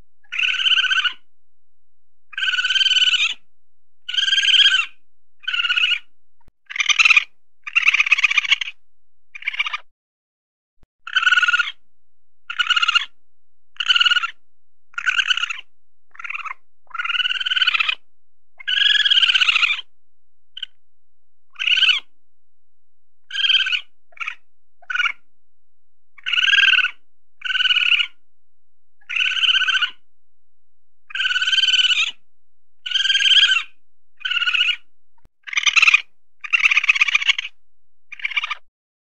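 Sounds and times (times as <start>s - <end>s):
weasel high trilling calls: 0.2s - 1.3s, 2.3s - 3.4s, 4.1s - 6.1s, 6.7s - 8.8s, 9.4s - 9.9s, 11.1s - 11.8s, 12.5s - 13.2s, 13.8s - 18.0s, 18.6s - 19.9s, 20.6s - 20.8s, 21.5s - 22.1s, 23.3s - 25.2s, 26.2s - 28.2s, 29.0s - 30.0s, 31.1s - 32.2s, 32.8s - 38.6s.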